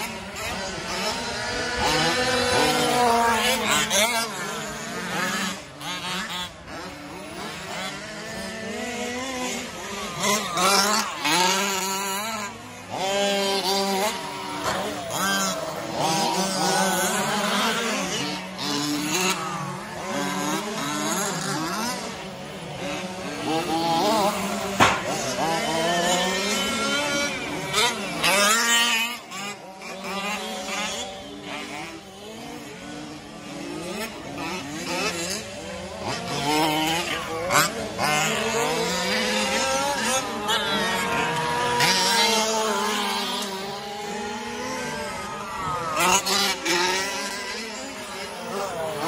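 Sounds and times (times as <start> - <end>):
rc truck motors revving: 0.0 - 49.0.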